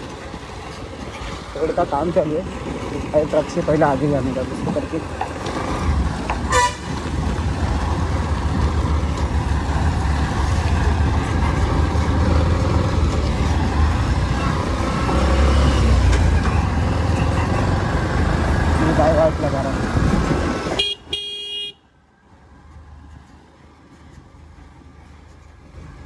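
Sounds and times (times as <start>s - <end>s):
horn beep: 20.8s - 21.8s.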